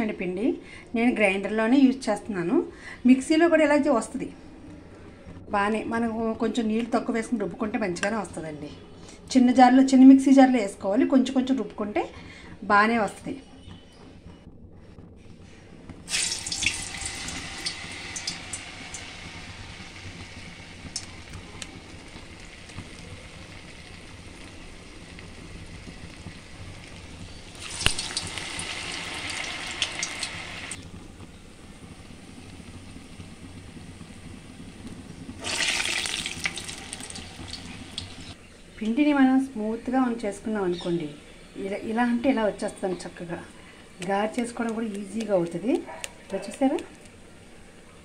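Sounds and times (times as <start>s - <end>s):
frying hiss and crackle: 10.0s - 48.0s
batter sizzling in hot oil: 12.3s - 47.8s.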